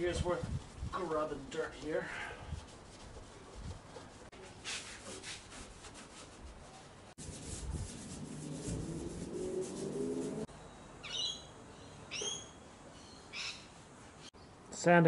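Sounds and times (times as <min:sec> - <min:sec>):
rag rubbing metal panels: 0:07.2 - 0:10.5.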